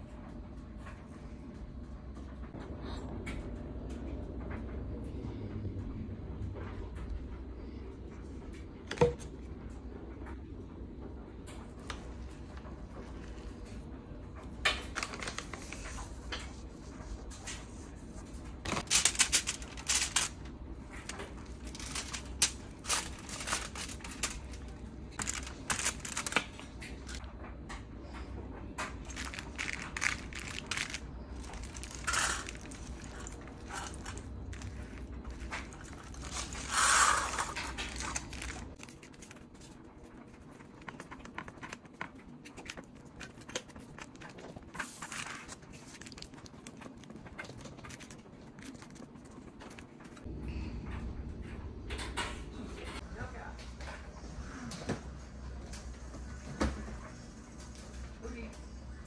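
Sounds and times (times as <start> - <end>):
foil crinkling: 14.7 - 16.5, 18.7 - 27.2, 28.9 - 50.2
hands crunching granola mixture: 29.0 - 39.6.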